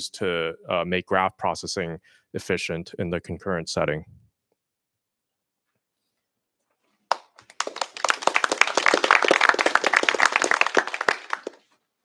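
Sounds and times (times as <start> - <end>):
audience applause: 7.1 - 11.7.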